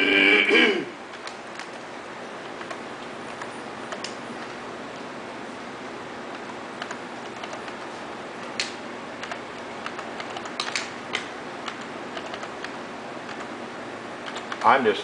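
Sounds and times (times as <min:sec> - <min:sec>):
steady background hiss: 0:00.0 - 0:15.0
computer keyboard clicks: 0:02.5 - 0:04.6, 0:06.3 - 0:13.5, 0:14.2 - 0:14.7.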